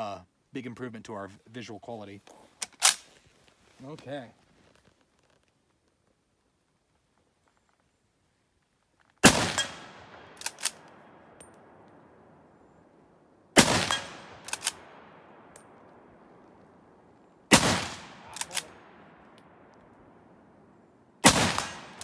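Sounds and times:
rifle bolt clicks: 2.6 - 3.2, 10.4 - 11.6, 13.8 - 14.9, 18.2 - 19.9
rifle shots echoing: 9.2 - 22.0.

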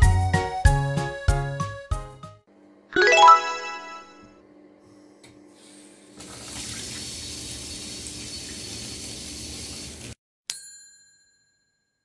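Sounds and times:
tap water rushing into tub: 6.2 - 10.2
bell-like ding: 10.5 - 12.0.

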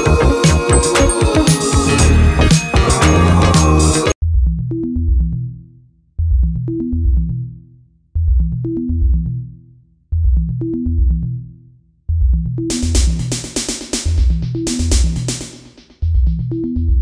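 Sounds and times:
electronic music: 0.0 - 5.5, 12.4 - 17.0.

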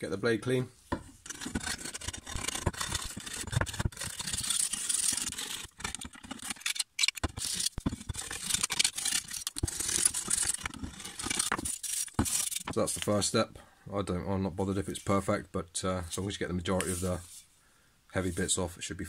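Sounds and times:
scraper on steel blade: 1.2 - 12.8.

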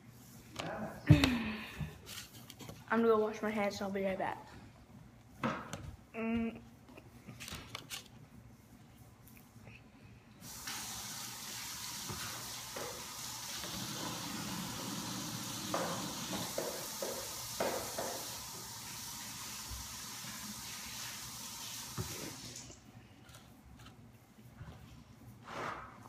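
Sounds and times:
water running from a tap: 10.4 - 22.8
knocks: 15.7 - 18.3.

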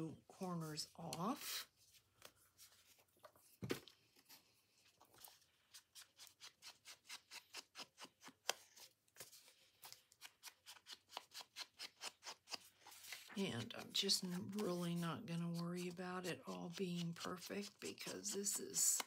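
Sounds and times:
scissors snipping paper: 9.9 - 19.0.

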